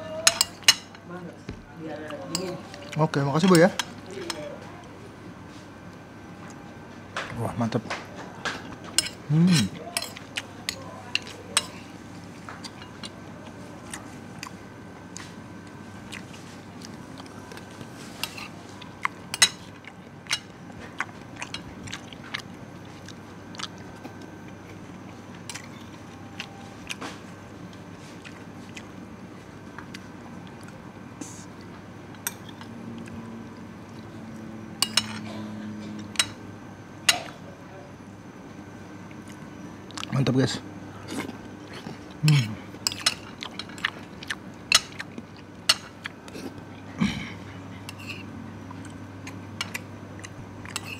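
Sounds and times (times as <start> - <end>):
low background hum: 0.0 - 50.9
cutlery clinking on ceramic plate: 34.8 - 35.2.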